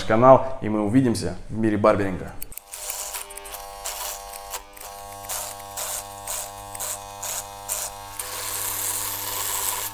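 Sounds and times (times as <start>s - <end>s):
electric hair clipper buzzing: 2.5s - 9.9s.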